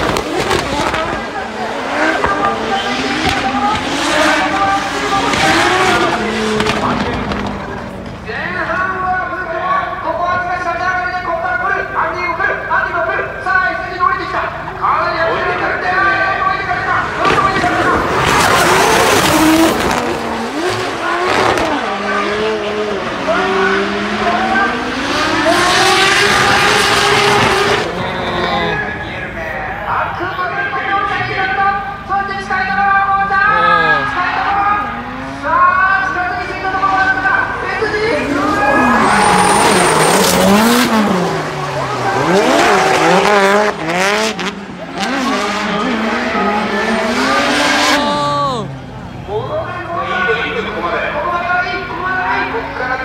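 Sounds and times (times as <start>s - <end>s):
car engines revving: 0.0s - 53.0s
tyres squealing: 33.2s - 44.0s
tyre squeal and scrubbing: 38.3s - 40.8s.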